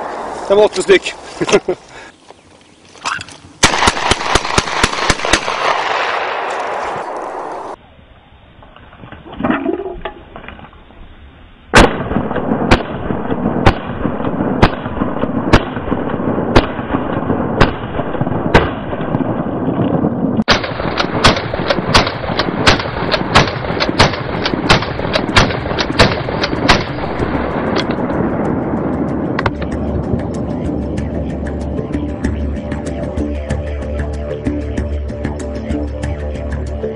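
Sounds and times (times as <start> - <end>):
shotgun shots: 3.6 - 7.8, 11.7 - 19.7, 20.5 - 28.4.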